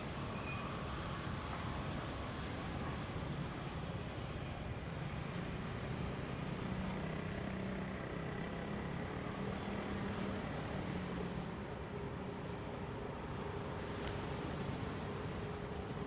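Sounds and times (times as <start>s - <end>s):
wind: 0.0s - 16.0s.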